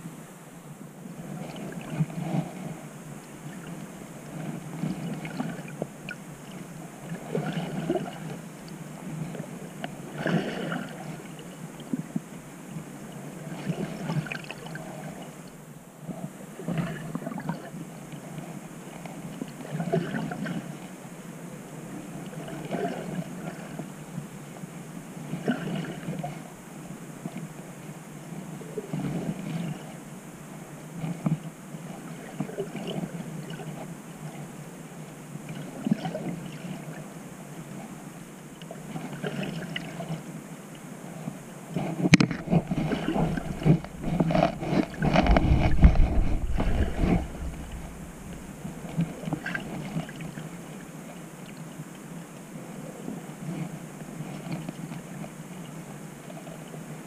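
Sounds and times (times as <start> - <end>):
muffled water sloshing: 1.0 - 15.5, 41.3 - 51.7.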